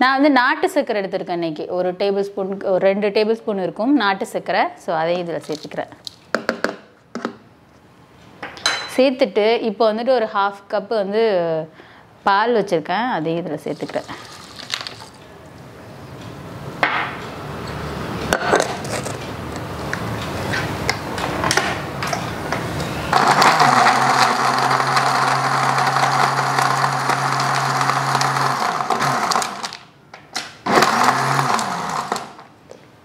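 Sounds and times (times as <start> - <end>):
blender running: 23.1 - 29.8, 30.7 - 32.5.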